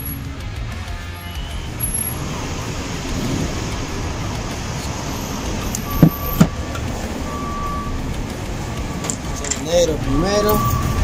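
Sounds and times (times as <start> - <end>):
background traffic rumble: 0.0 - 11.0
short high beep: 10.1 - 11.0.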